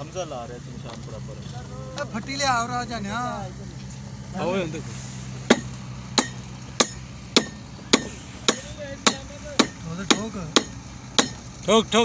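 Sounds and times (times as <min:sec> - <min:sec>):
hammering: 0:05.4 - 0:11.5.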